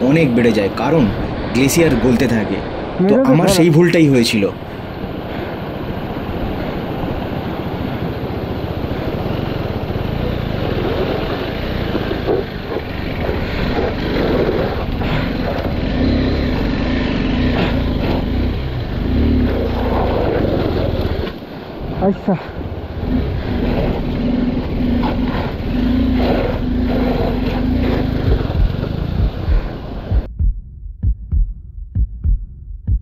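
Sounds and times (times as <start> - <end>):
motorcycle engine revving: 4.8 - 21.8, 22.5 - 30.3.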